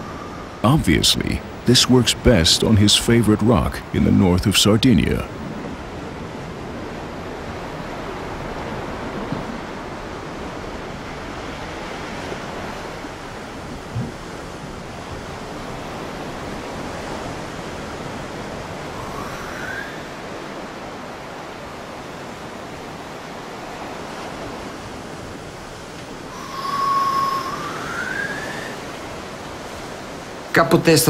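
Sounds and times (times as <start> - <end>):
faint rising whistle: 0.0 - 0.6, 19.0 - 20.2, 26.3 - 29.0
surf rushing against rocks: 0.0 - 31.0.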